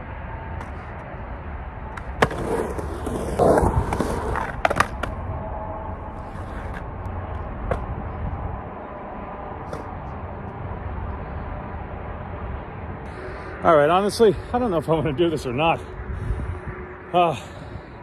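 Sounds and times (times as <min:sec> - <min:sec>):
highway traffic hum: 0:00.0 - 0:18.0
skateboard wheels rumbling on concrete: 0:01.8 - 0:08.8.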